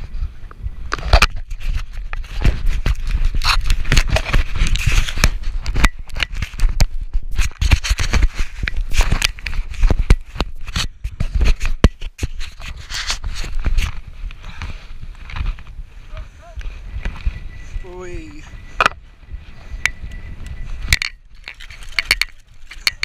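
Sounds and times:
fingers rubbing on camera: 7.3 - 14.0.

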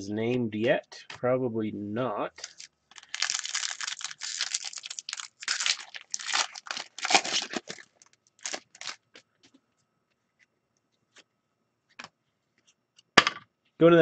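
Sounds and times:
foil wrapper crinkling and tearing: 2.4 - 9.2.

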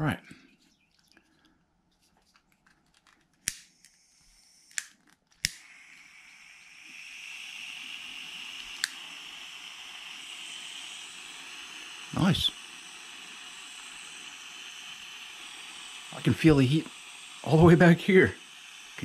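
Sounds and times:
butane burning hiss: 3.5 - 19.0
igniter clicks: 4.7 - 7.4, 8.6 - 10.2.

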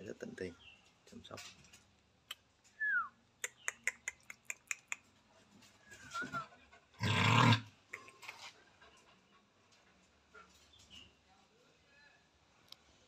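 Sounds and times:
sharp clicks: 3.4 - 5.1.

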